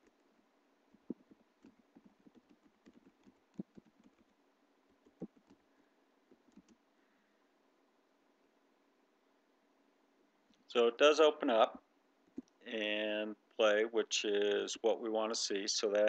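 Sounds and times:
keyboard typing: 1.0s - 5.7s, 6.3s - 6.8s.

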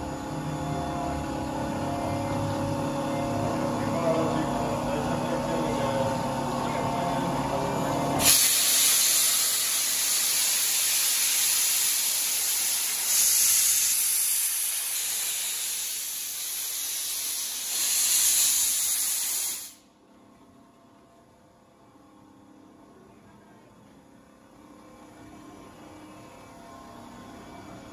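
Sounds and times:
steam locomotive venting steam: 8.2s - 19.8s.

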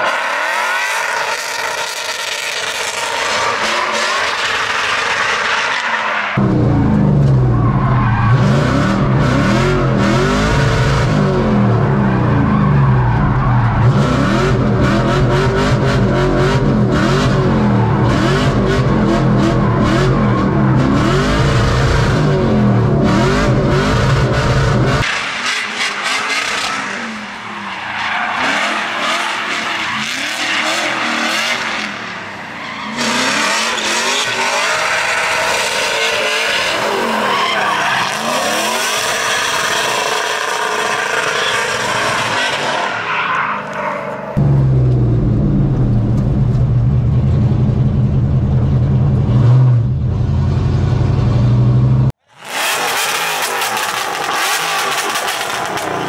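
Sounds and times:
tyres skidding: 0.0s - 56.0s
car engine revving: 6.4s - 27.5s, 28.1s - 32.1s, 44.4s - 56.0s.

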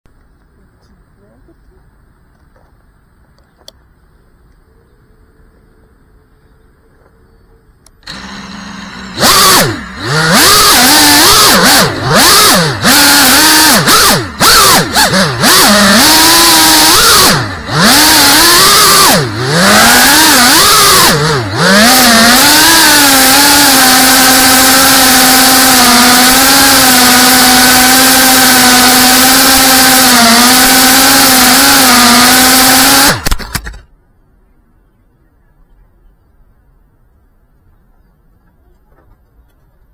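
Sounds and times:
drone motors whining: 6.9s - 33.9s.

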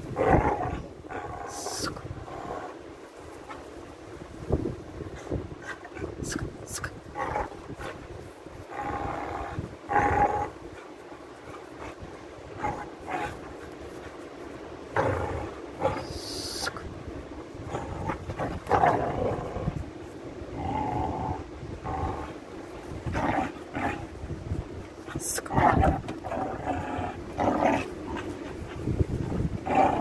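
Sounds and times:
puppy growling: 7.1s - 13.7s, 17.6s - 19.9s, 20.5s - 24.2s, 25.5s - 30.0s.

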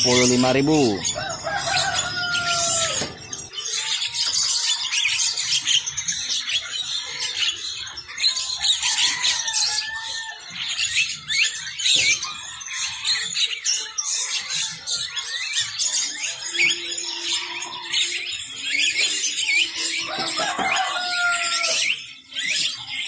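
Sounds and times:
caged birds chirping: 0.0s - 23.0s
rooster crowing: 0.8s - 3.3s, 8.6s - 10.6s, 19.9s - 21.9s.

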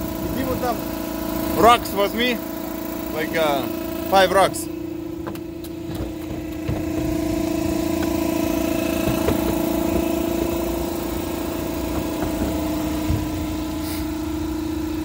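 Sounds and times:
machine humming: 0.0s - 15.0s
faint knocks: 5.1s - 13.8s.

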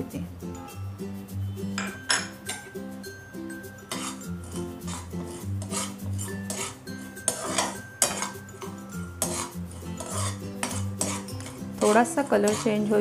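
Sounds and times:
soft background music: 0.0s - 13.0s
spoon scraping and tapping pan: 1.8s - 2.8s, 3.7s - 13.0s.

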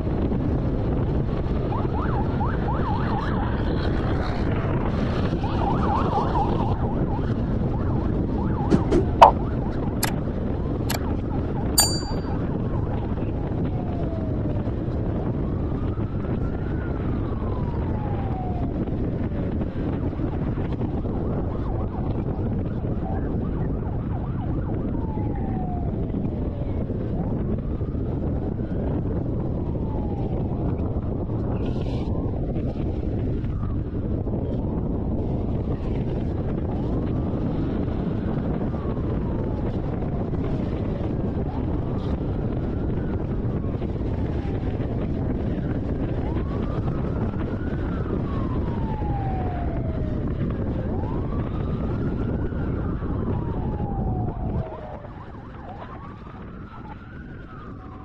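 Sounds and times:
car road and wind rumble: 0.0s - 58.0s
police siren wailing: 15.2s - 19.1s, 22.9s - 27.8s, 45.8s - 58.0s.

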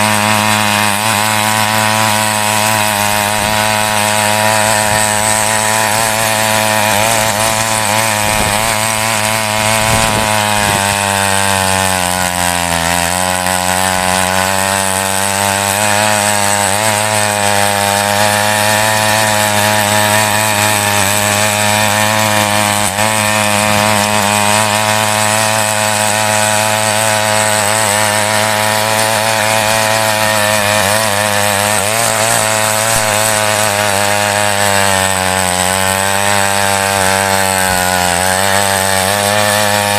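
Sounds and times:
small petrol engine running hard: 0.0s - 39.9s
tines churning soil: 0.0s - 39.9s.

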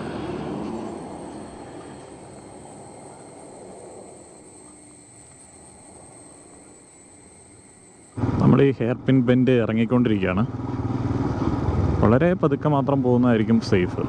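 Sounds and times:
motorcycle wind and road noise: 10.2s - 12.2s.

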